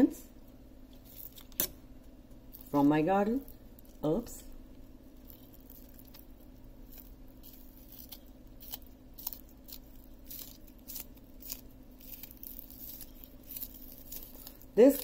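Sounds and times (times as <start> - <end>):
blade snipping spring onions: 6.9 - 15.0.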